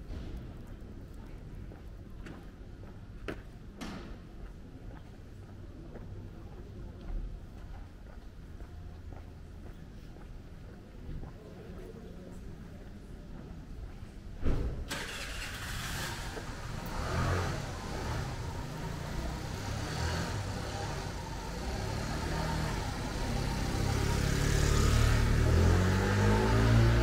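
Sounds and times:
outdoor street noise: 0.0s - 27.0s
motor scooter passing: 14.9s - 27.0s.

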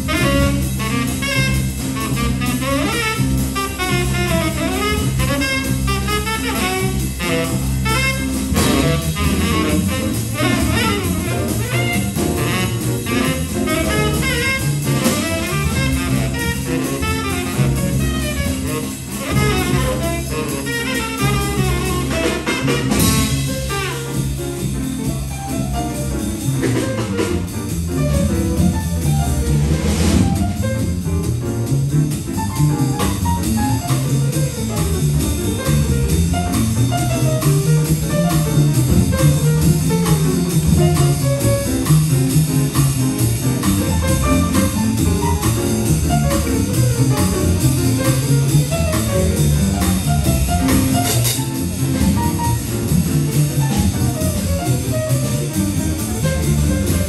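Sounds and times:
saxophone: 0.0s - 24.4s
drum kit with cymbals: 0.0s - 57.0s
piano: 0.0s - 57.0s
upright double bass: 0.0s - 57.0s.

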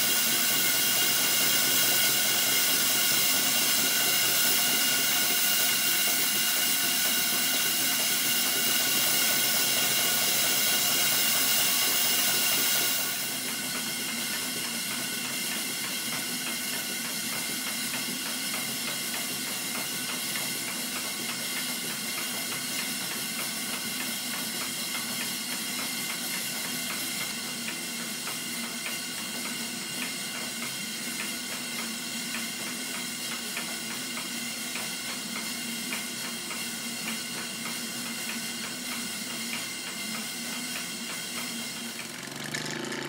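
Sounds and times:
model steam engine running: 0.0s - 43.0s.

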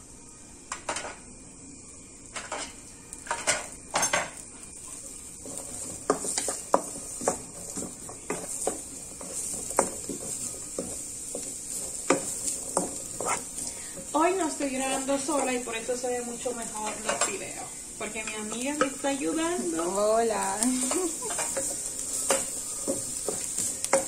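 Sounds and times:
vegetables sizzling in oil: 0.0s - 24.0s
wooden spatula scraping a pan: 4.9s - 15.7s, 19.6s - 24.0s.

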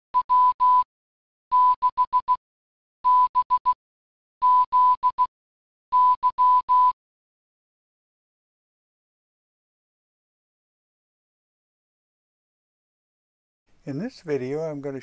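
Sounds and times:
morse code beeps: 0.2s - 0.8s, 1.5s - 2.4s, 3.0s - 3.8s, 4.4s - 5.3s, 5.9s - 7.0s.

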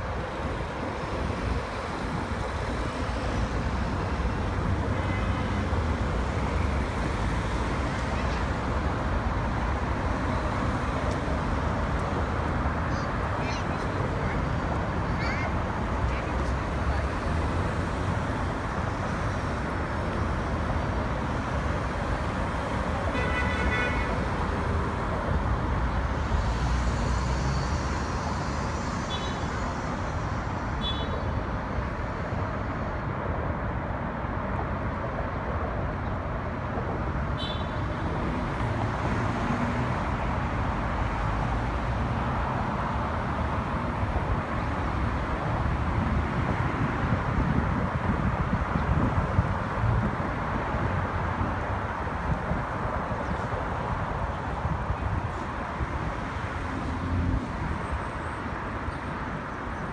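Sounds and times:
traffic rumble: 0.0s - 59.9s.

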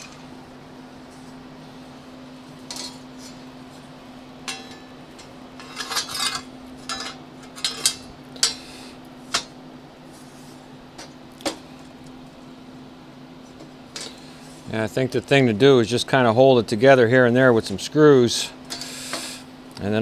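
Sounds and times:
metal plates clinking: 4.4s - 8.7s.

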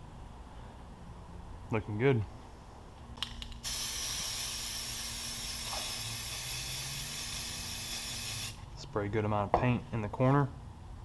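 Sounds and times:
spray can hissing: 3.6s - 8.6s.

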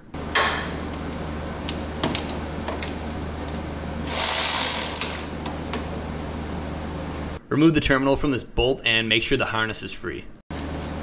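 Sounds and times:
steady low hum: 0.0s - 7.7s
cordless ratchet whirring: 4.0s - 5.4s.

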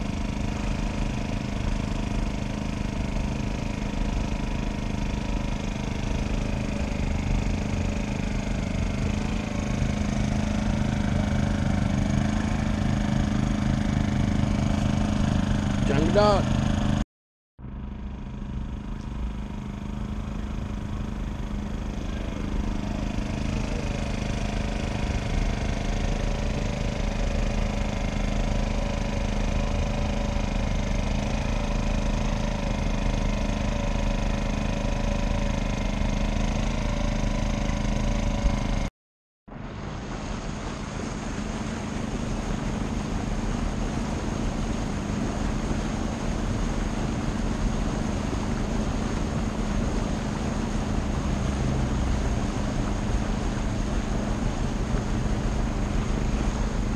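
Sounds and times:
boat engine running: 0.0s - 17.0s, 17.6s - 38.9s, 39.5s - 56.9s.

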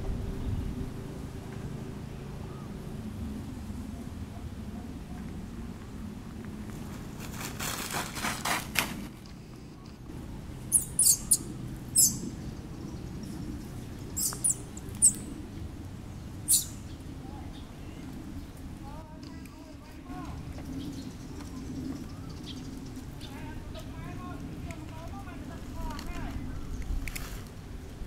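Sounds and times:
low outdoor rumble: 0.0s - 28.0s
rustling: 6.7s - 10.0s
infant monkey squeaking: 10.7s - 12.3s, 14.1s - 15.3s, 16.4s - 16.8s.

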